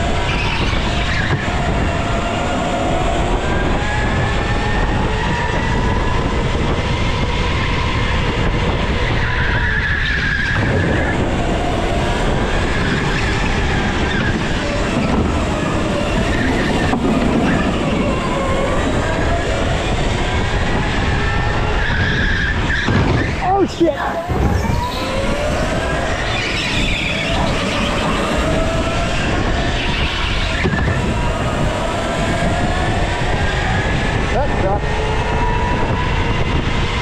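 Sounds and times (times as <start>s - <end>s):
go-kart motor revving: 10.6s - 37.0s
tyres squealing on concrete: 21.7s - 28.6s.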